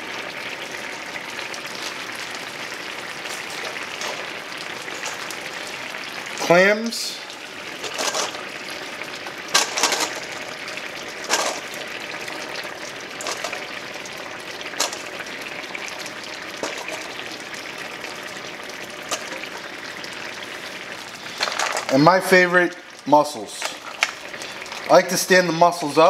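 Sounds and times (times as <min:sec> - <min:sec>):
liquid simmering and sizzling: 0:00.0 - 0:26.0
clamshells clacking in metal bowl: 0:09.5 - 0:10.4, 0:11.3 - 0:11.6, 0:21.4 - 0:21.9.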